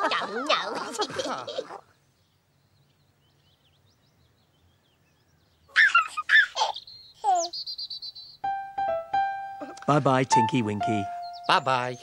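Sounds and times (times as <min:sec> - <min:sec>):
baby giggling: 0:05.7 - 0:07.5.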